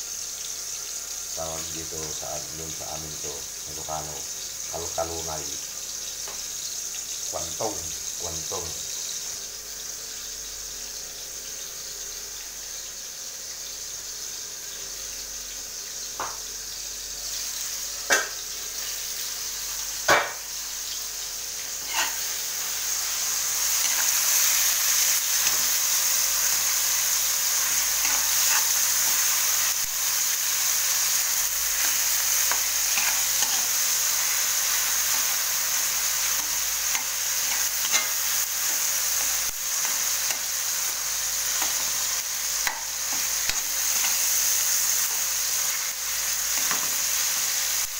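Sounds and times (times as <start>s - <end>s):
food sizzling in hot oil: 0.0s - 47.9s
metal spoon stirring pan: 21.8s - 22.2s, 27.6s - 29.3s, 31.8s - 33.8s, 36.4s - 38.2s.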